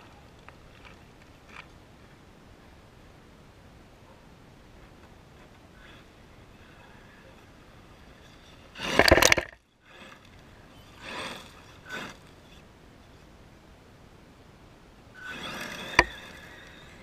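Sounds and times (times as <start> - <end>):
tyres skidding and spraying gravel: 8.1 - 12.5.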